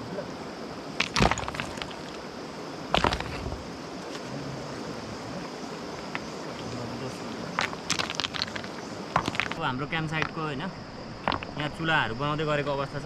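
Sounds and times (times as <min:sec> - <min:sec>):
stones clacking together: 0:01.0 - 0:02.2, 0:02.9 - 0:03.6, 0:05.9 - 0:10.5, 0:11.2 - 0:11.8.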